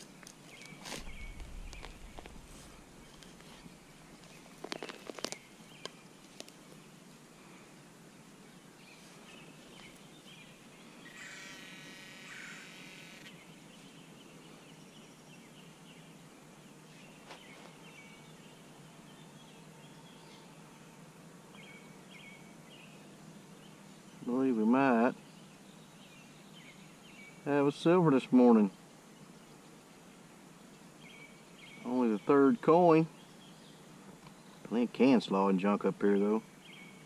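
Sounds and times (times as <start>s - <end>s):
dirt rustling by hand: 0.0s - 6.7s.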